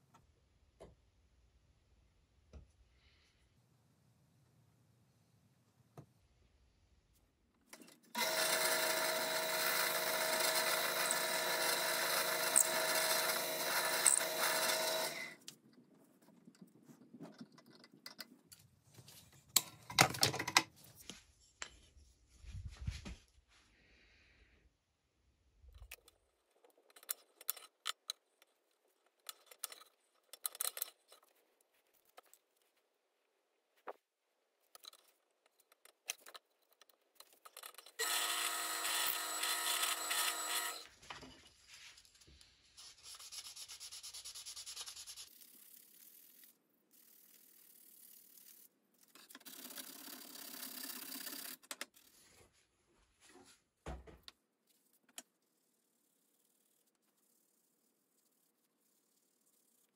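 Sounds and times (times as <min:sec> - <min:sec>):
drill press boring into wood: 0:08.2 - 0:15.4, 0:38.0 - 0:40.9
workshop handling and scraping: 0:41.0 - 0:42.1.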